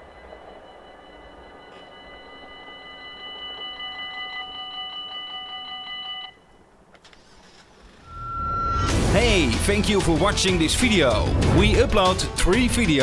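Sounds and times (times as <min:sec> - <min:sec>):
level crossing bell ringing: 0:00.0 - 0:06.4.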